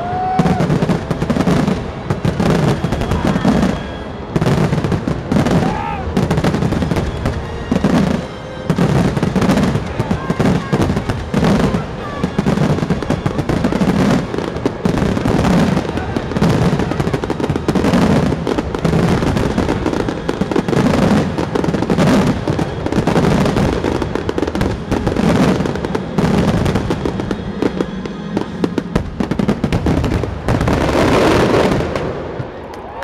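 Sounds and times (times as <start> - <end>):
fireworks booming and crackling: 0.0 - 33.0
music: 3.0 - 12.9.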